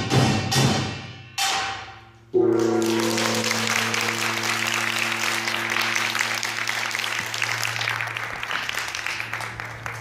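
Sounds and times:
audience applauding: 0:02.6 - 0:10.0.

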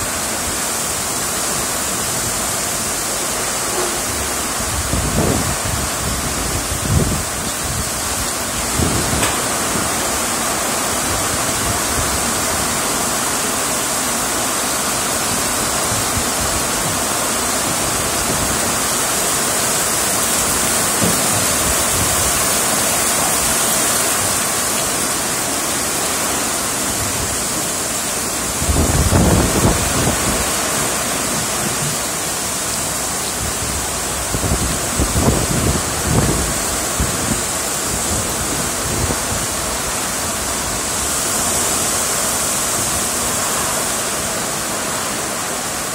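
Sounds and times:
heavy rain on road: 0:00.0 - 0:45.9
wind rumble on microphone: 0:04.1 - 0:10.0, 0:15.6 - 0:19.0, 0:20.2 - 0:23.5, 0:28.4 - 0:32.0, 0:33.3 - 0:41.1.

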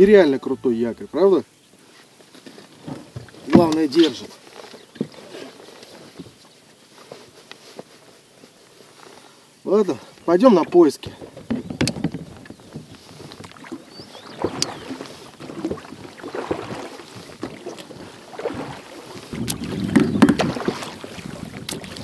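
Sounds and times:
oars splashing in water: 0:01.9 - 0:09.3, 0:10.1 - 0:22.0
water rushing: 0:09.6 - 0:22.0.

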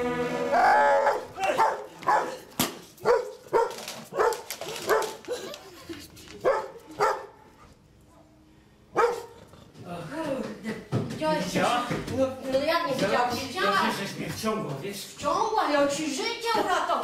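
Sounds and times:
dog barking: 0:01.1 - 0:02.4, 0:03.0 - 0:05.2, 0:06.4 - 0:07.5, 0:08.9 - 0:09.4.

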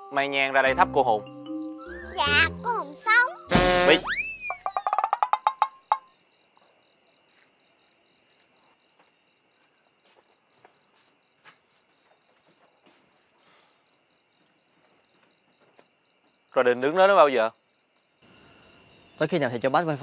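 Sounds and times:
cartoon plinking notes: 0:00.7 - 0:05.2
crickets trilling: 0:03.0 - 0:20.0.

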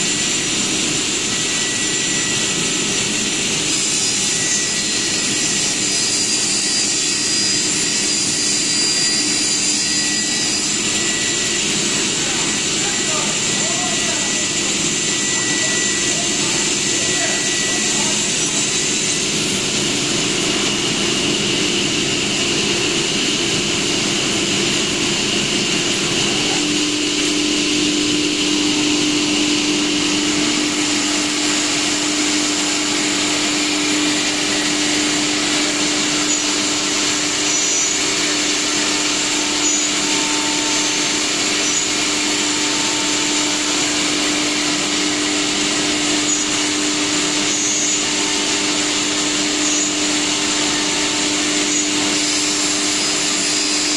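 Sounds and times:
router machine running with whine: 0:00.0 - 0:53.9
low hum: 0:20.5 - 0:32.2.

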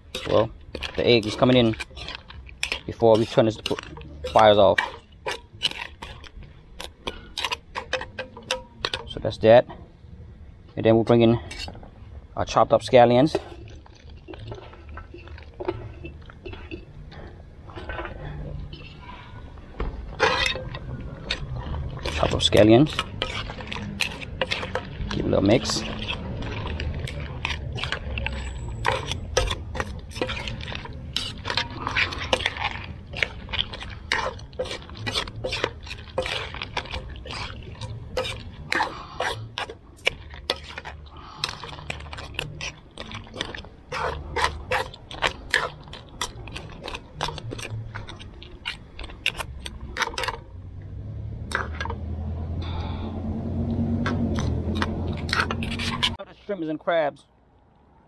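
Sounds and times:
spoon clacking and scraping in wok: 0:00.0 - 0:09.2, 0:13.3 - 0:17.2, 0:20.0 - 0:50.4
thick sauce sloshing: 0:00.0 - 0:56.2.

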